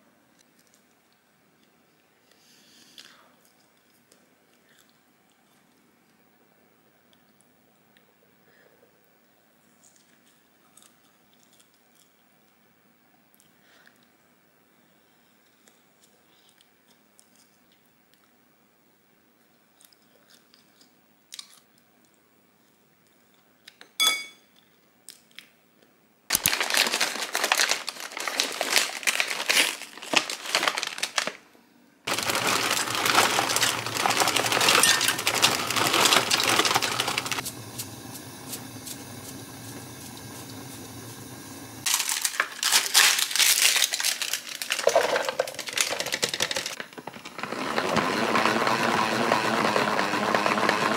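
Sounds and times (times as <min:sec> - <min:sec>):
plastic container crinkling: 0:26.3 - 0:31.4, 0:32.1 - 0:37.4, 0:41.9 - 0:47.9
packaging crinkling: 0:26.3 - 0:31.5, 0:32.1 - 0:37.4, 0:41.8 - 0:47.5.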